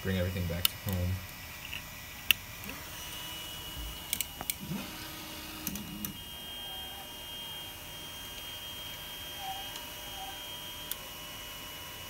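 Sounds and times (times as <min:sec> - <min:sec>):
steady high-pitched whine: 0:00.0 - 0:12.0
stepper motor whines: 0:00.7 - 0:12.0.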